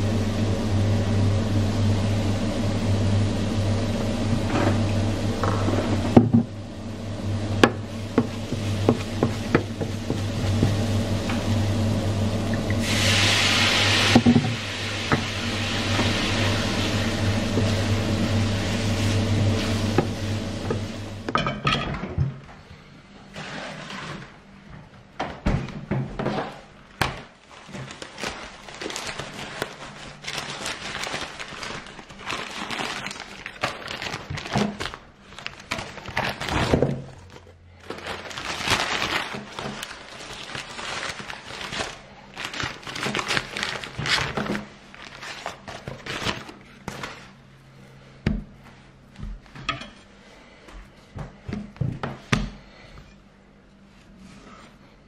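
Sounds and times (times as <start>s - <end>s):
steady low hum: 0.0s - 55.0s
filling sizzling in frying pan: 12.7s - 21.1s
paper crinkling: 27.0s - 47.5s.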